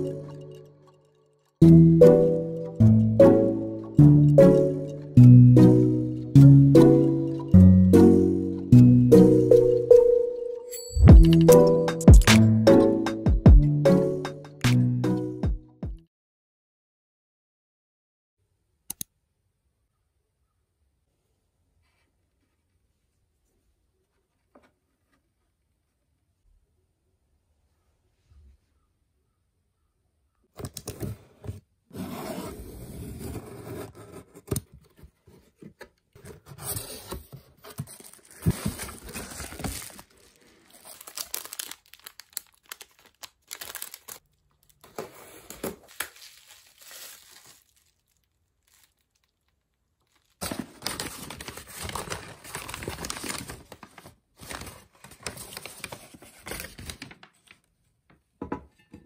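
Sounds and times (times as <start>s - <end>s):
paper and bubble wrap crinkling: 36.6s - 57.6s.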